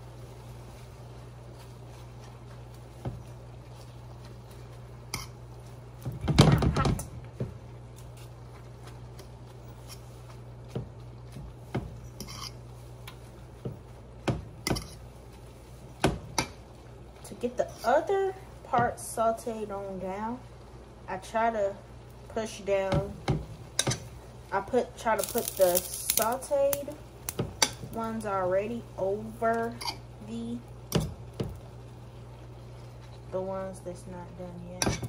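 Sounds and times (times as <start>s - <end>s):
utensils scraping a skillet: 0.8s - 5.7s, 9.2s - 10.6s, 11.2s - 13.4s, 14.6s - 15.6s, 17.6s - 18.2s, 25.1s - 26.9s, 29.4s - 30.1s.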